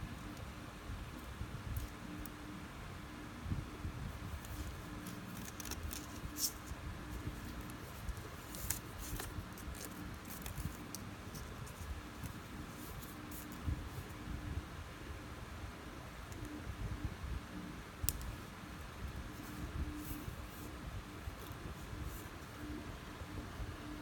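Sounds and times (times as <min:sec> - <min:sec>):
fishing line rustling: 0:04.2 - 0:14.2.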